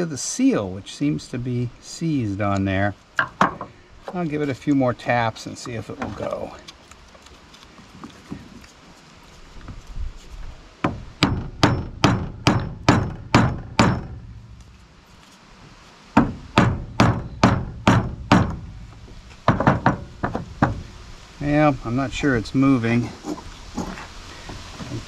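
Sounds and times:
hammer tapping on metal shaft: 0:11.2 - 0:14.2.

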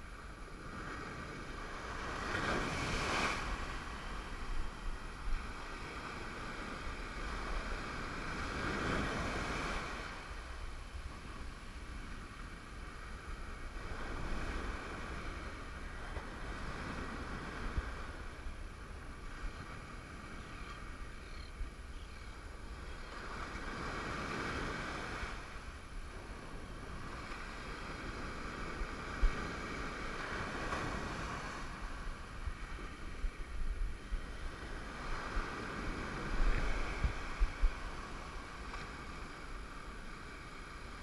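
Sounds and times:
wind on microphone: 0:00.0 - 0:41.0
ocean surf breaking: 0:00.8 - 0:11.8, 0:23.1 - 0:41.0.

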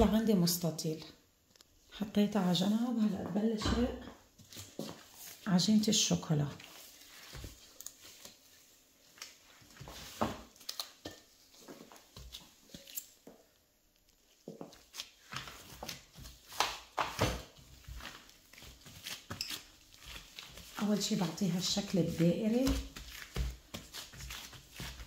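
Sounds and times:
dough taps and thumps: 0:21.8 - 0:25.0.

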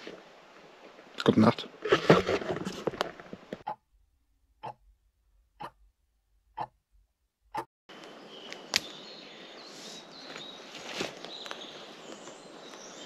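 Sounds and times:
outdoor forest ambience: 0:00.0 - 0:13.0
clock ticking: 0:04.6 - 0:04.8, 0:05.6 - 0:05.9, 0:06.5 - 0:06.8
sleeping bag fabric rustle: 0:10.3 - 0:12.2.

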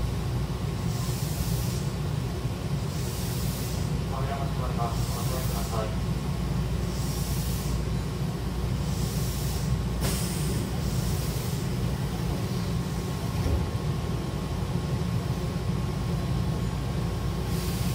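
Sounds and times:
train low hum: 0:00.0 - 0:17.9
sliding doors closing: 0:13.1 - 0:14.0.

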